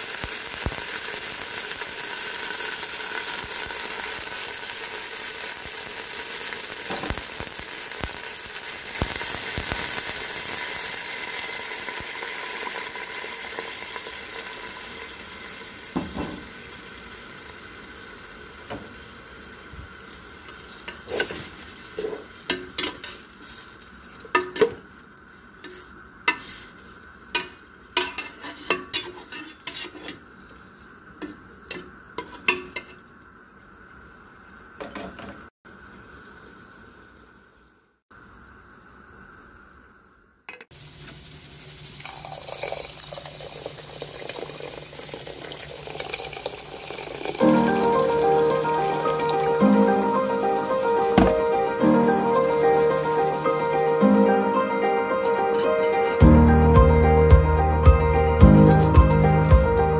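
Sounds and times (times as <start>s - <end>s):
stew sizzling in a pot: 0.0s - 55.1s, 58.4s - 59.9s
metal spoon scraping a pot: 28.0s - 30.2s.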